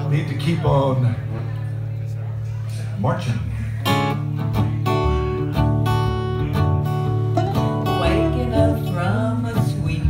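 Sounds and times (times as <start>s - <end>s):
acoustic guitar strumming: 3.8s - 10.0s
person singing: 7.9s - 10.0s.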